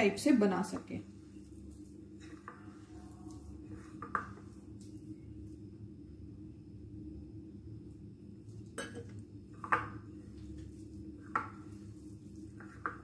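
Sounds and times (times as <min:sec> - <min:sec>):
hands kneading dough: 0:00.5 - 0:05.7, 0:09.5 - 0:13.0
low hum: 0:01.0 - 0:12.6
dishware clinking: 0:08.8 - 0:09.1.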